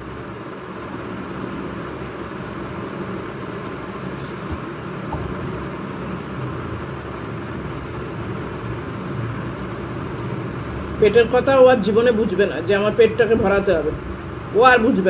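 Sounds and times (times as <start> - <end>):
low hum: 4.2 - 7.8.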